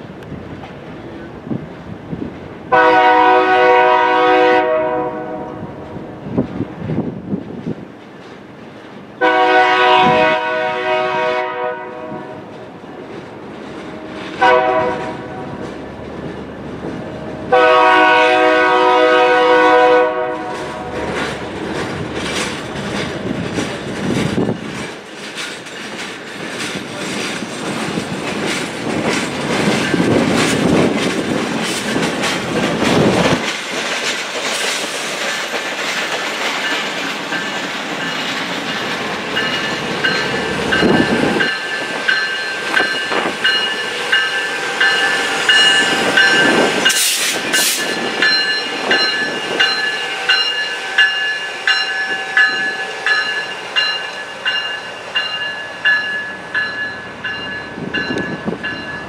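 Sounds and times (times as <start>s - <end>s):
train wheels clacking over rail joints: 0.2s - 59.0s
locomotive air horn: 2.7s - 5.7s, 9.2s - 12.5s, 14.0s - 15.6s, 17.5s - 21.1s.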